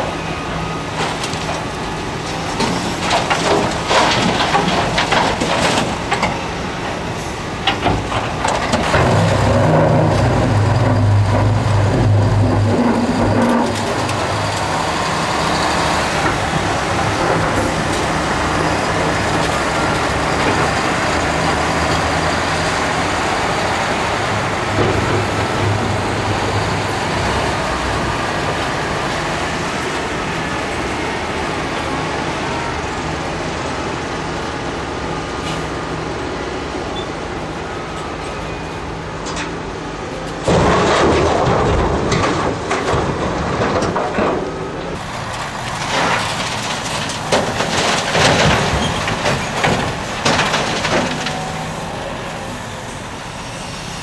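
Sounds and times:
diesel truck engine running: 0:00.0 - 0:36.7
excavator bucket scraping rock: 0:07.8 - 0:18.3, 0:40.5 - 0:51.6.

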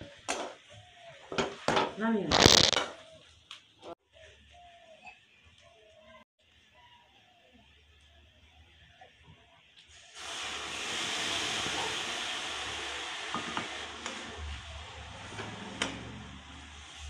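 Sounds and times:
loud sizzling in a hot wok: 0:08.5 - 0:17.0.

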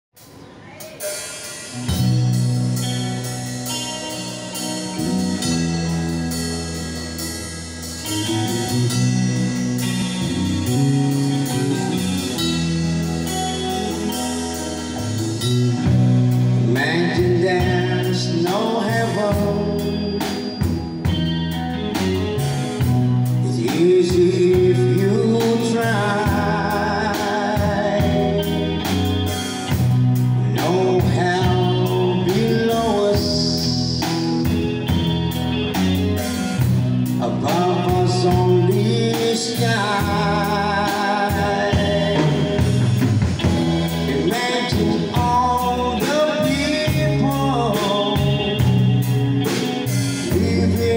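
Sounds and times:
drum kit: 0:00.2 - 0:50.9
electric guitars: 0:00.2 - 0:50.9
man singing into a microphone: 0:16.6 - 0:20.6, 0:23.4 - 0:28.9, 0:30.4 - 0:34.6, 0:37.2 - 0:43.0, 0:44.0 - 0:49.1, 0:50.0 - 0:50.9.

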